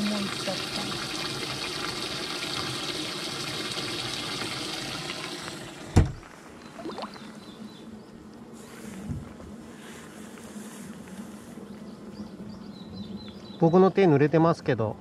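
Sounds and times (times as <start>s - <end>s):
water rushing in a tank: 0.0s - 7.3s.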